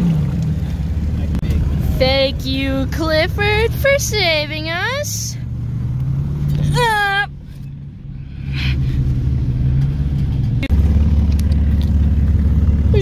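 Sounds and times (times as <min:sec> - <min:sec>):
deep engine drone: 0:00.0 - 0:13.0
off-road vehicle engine at low revs: 0:00.0 - 0:13.0
person shouting: 0:06.6 - 0:07.3.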